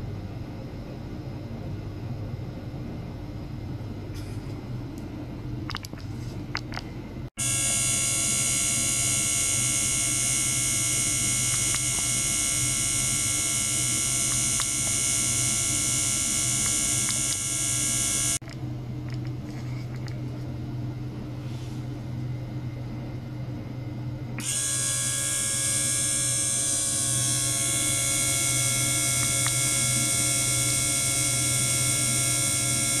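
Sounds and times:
high buzzing whine: 7.4s - 20.4s, 24.3s - 33.0s.

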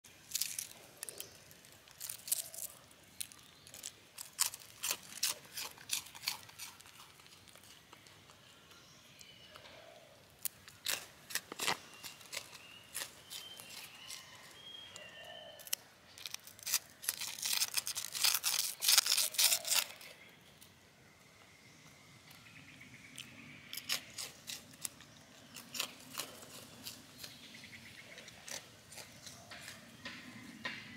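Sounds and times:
monkey crunching snack sticks: 0.2s - 8.5s, 10.3s - 14.6s, 15.6s - 20.2s, 23.2s - 27.4s, 28.1s - 29.8s.

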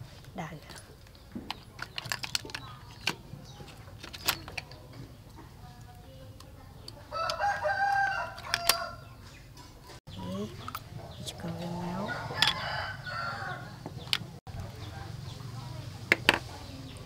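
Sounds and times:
rooster crowing: 7.1s - 9.0s, 12.0s - 13.8s.

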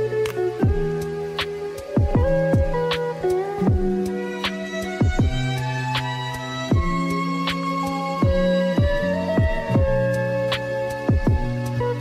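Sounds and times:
lo-fi music with slow drums: 0.0s - 12.0s.

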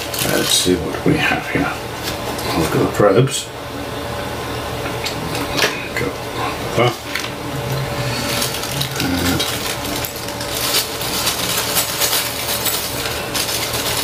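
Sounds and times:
plastic bag crinkling: 0.0s - 0.8s, 7.0s - 14.0s
small parts rattling inside bag: 8.2s - 14.0s.

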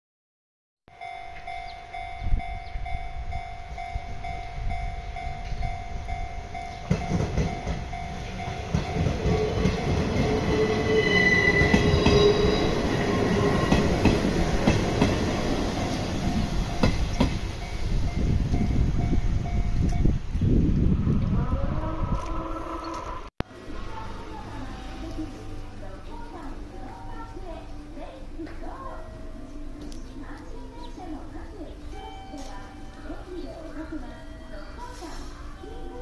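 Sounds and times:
level crossing bell ringing: 0.9s - 13.5s, 31.8s - 35.0s
train whine: 0.9s - 36.0s
train rumble passing: 1.0s - 36.0s.

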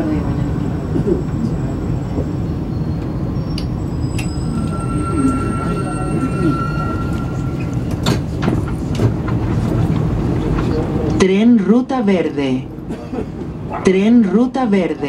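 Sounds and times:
metro train rumbling in tunnel: 0.0s - 15.0s
thin high whine: 4.0s - 8.7s.

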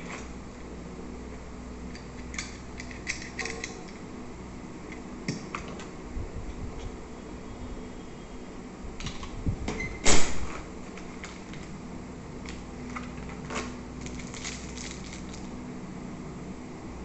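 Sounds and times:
steady hum: 0.0s - 17.0s
plastic bags crinkling: 12.5s - 15.6s.

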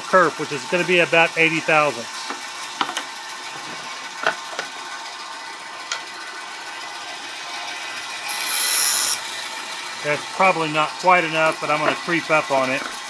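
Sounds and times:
bandsaw running: 0.0s - 13.0s
bandsaw blade cutting wood: 8.1s - 9.8s.

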